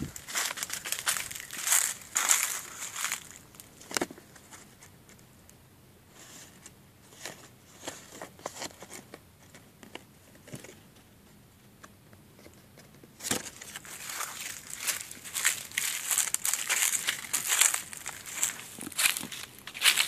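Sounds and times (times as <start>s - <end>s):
leaves rustling and crackling: 0.0s - 4.1s, 13.4s - 20.0s.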